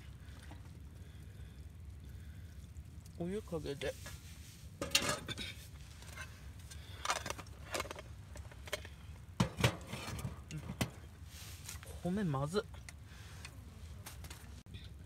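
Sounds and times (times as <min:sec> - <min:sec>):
mess tin and utensils clinking: 0:04.8 - 0:08.0.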